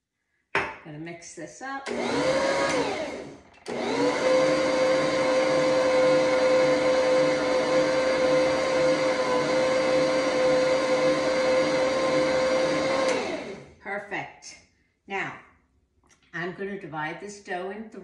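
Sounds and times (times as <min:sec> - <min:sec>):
stand mixer motor running: 0:01.9 - 0:13.7.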